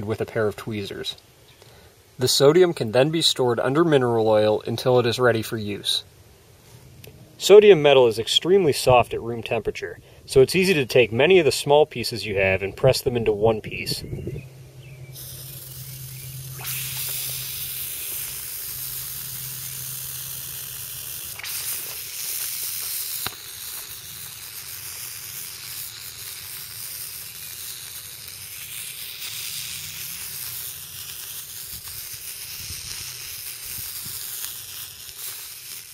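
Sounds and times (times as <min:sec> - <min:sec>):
sodium fizzing on water: 0:15.2 - 0:35.9
sharp pop: 0:21.4 - 0:23.9.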